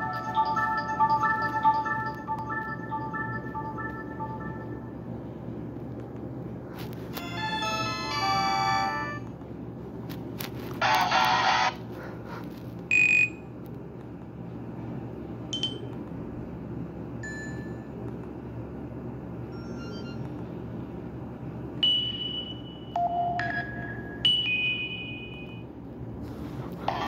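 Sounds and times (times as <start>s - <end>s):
steady high tone: 0.0s - 5.2s, 7.2s - 9.3s
constant low hum: 0.0s - 27.0s.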